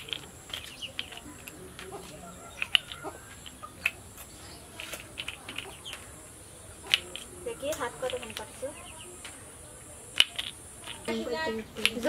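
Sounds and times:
short bird calls: 0.0s - 11.1s.

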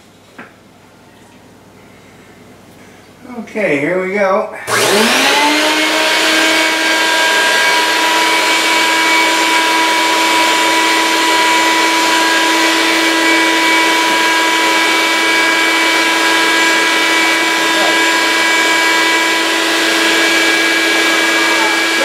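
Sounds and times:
vacuum cleaner whining: 4.6s - 22.0s.

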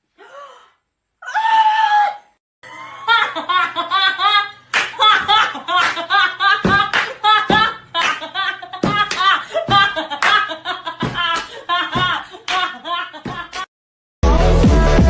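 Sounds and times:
sharp slaps: 4.8s - 6.0s, 6.6s - 8.2s.

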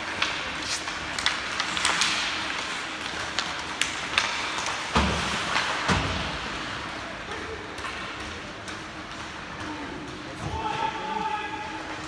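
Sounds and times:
hockey sticks clicking: 0.0s - 6.4s, 7.2s - 10.6s
skate blades scraping ice: 0.0s - 6.9s.

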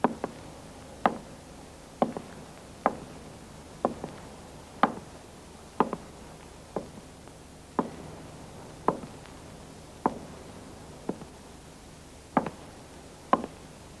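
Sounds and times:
footsteps on pavement: 1.1s - 1.3s, 2.0s - 3.1s, 3.8s - 5.1s, 5.8s - 6.1s, 6.8s - 7.1s, 8.9s - 9.3s, 10.0s - 10.3s, 11.1s - 11.4s.

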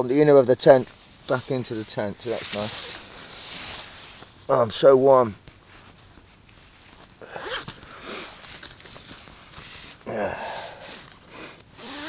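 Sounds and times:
tent fabric rustling: 0.7s - 12.0s
person sniffing: 7.2s - 8.5s, 9.8s - 11.6s
person breathing: 9.8s - 11.6s.

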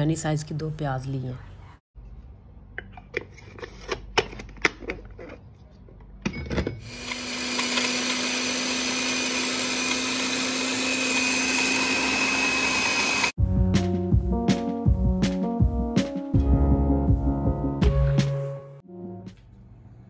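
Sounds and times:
food chopper motor running: 6.8s - 13.4s.

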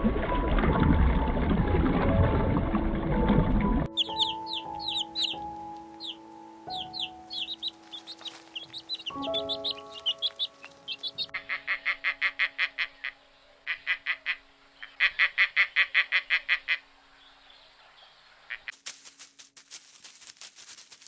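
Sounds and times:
soft background music: 0.0s - 17.4s
turkey gobbling: 3.9s - 5.4s, 6.0s - 14.4s
chicks peeping: 3.9s - 12.5s.

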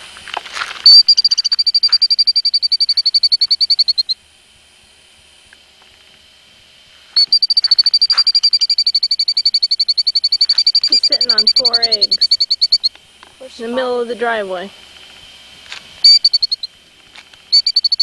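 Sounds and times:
bird pulsed trill: 0.8s - 4.2s, 7.1s - 14.4s, 16.0s - 16.8s, 17.4s - 18.0s.

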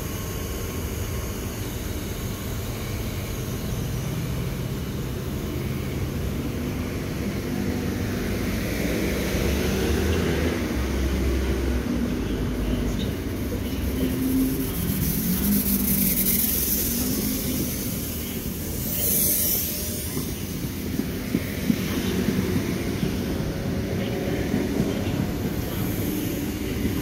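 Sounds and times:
electric train hum: 0.0s - 27.0s
train wheels rumbling on rail: 0.0s - 27.0s.

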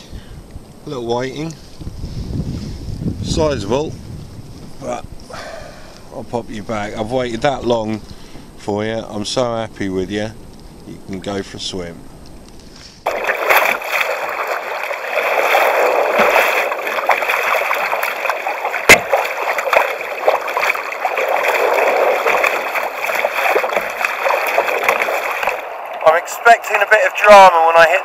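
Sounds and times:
water splashing around kayak: 12.7s - 27.9s
sharp knock: 18.9s - 19.2s.

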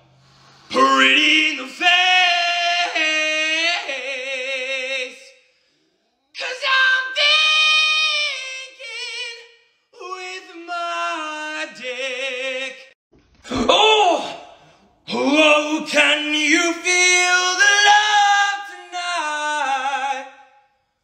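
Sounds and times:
high-pitched singing voice: 0.7s - 5.3s, 6.4s - 12.8s.

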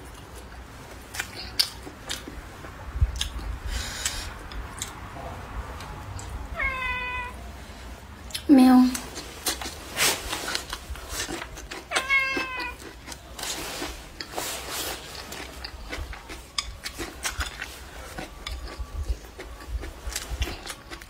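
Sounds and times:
chewing and crunching: 0.0s - 5.0s, 8.3s - 21.0s
cat meowing: 6.5s - 7.4s, 11.9s - 12.8s.

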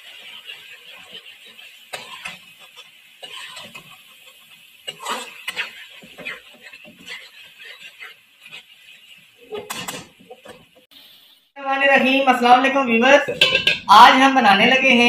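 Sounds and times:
frying sizzle: 0.0s - 15.0s
metal spoon scraping metal pan: 0.1s - 4.0s, 4.8s - 10.7s, 13.3s - 13.9s.

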